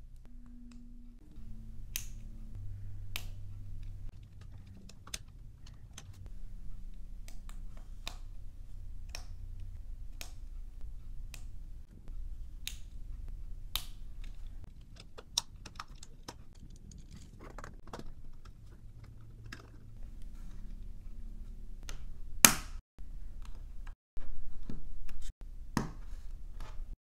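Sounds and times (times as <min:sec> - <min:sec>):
plastic parts rattling: 0:04.1 - 0:06.2, 0:14.3 - 0:20.0.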